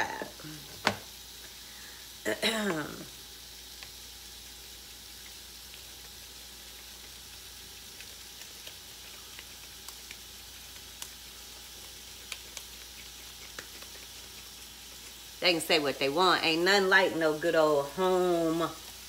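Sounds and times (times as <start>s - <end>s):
patty sizzling on grill: 0.0s - 19.0s
small pops and crackles: 5.2s - 15.3s.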